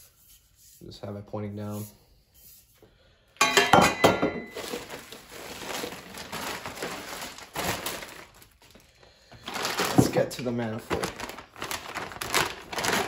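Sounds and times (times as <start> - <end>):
plastic bags crinkling: 4.5 - 13.0.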